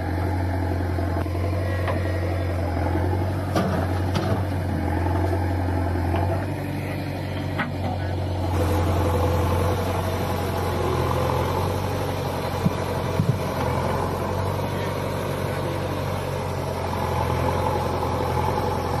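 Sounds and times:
diesel engines running: 0.0 - 19.0.

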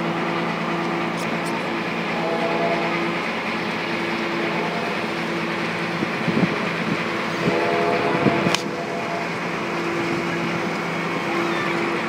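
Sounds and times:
boat engine drone: 0.0 - 12.0
water noise: 0.0 - 12.0
chord of high held tones: 2.1 - 3.2
wind noise: 5.9 - 9.2.

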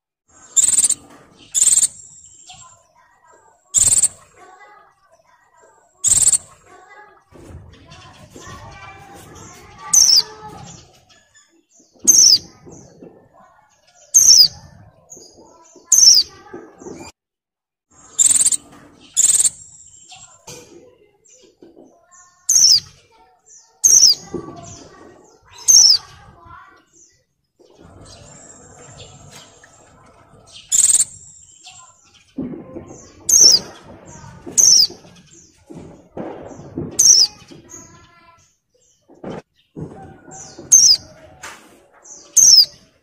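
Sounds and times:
high sharp bird calls: 0.4 - 3.1, 3.7 - 4.3, 6.0 - 6.7, 7.7 - 13.1, 13.7 - 16.4, 18.0 - 20.5, 21.3 - 41.2, 42.0 - 43.0.

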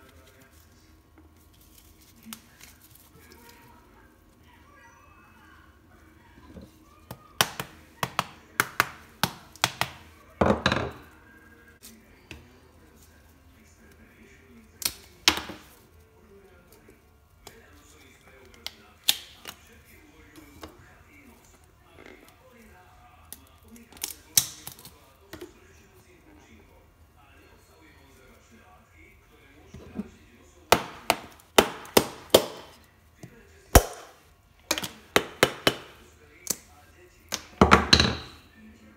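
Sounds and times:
hammer knocking coconut shell: 30.7 - 32.7
coconut shell clattering: 30.7 - 32.8.

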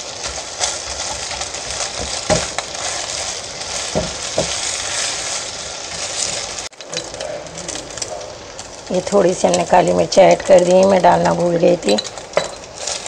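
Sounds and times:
spatula scraping and tapping pan: 0.0 - 7.3
eggs sizzling in oil: 0.0 - 13.0.

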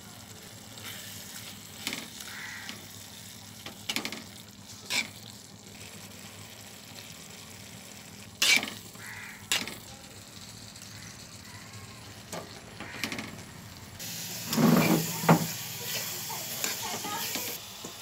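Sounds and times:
food sizzling in a pan: 0.0 - 18.0.

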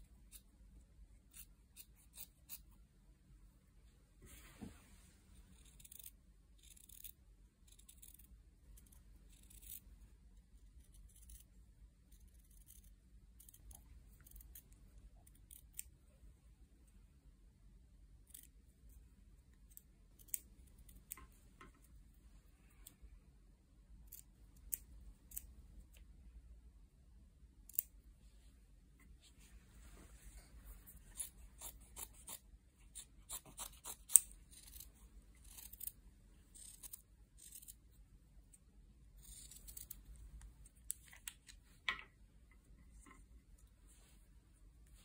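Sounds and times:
scissors snipping fabric: 31.0 - 37.8.

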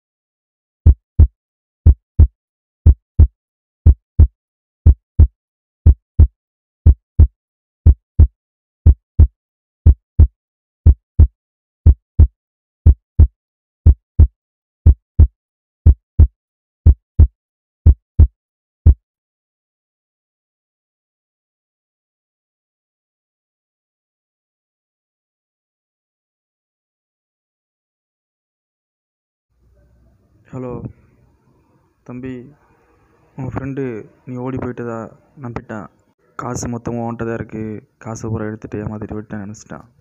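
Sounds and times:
heartbeat thumps: 0.8 - 19.0.

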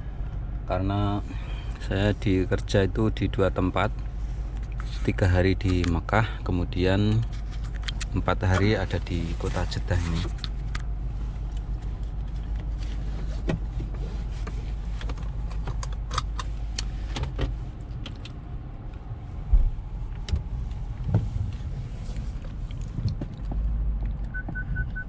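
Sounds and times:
low car engine rumble: 0.0 - 25.0
rapid electronic warning beep: 24.4 - 25.0.

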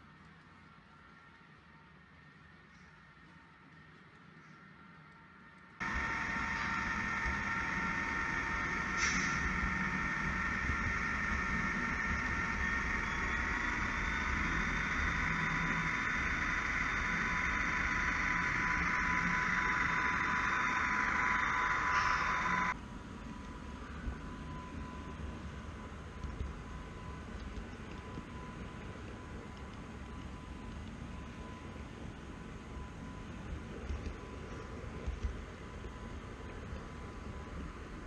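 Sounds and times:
model train motor whine: 5.8 - 22.8
low rolling rumble: 5.8 - 29.6
brief hiss: 9.0 - 9.5.

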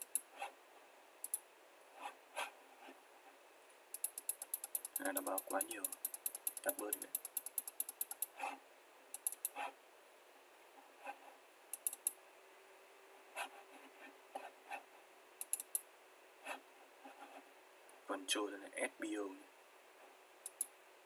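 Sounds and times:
computer mouse clicking: 0.0 - 0.3, 1.2 - 1.5, 3.9 - 8.4, 9.1 - 9.7, 11.7 - 12.2, 15.4 - 15.9, 20.4 - 20.7.

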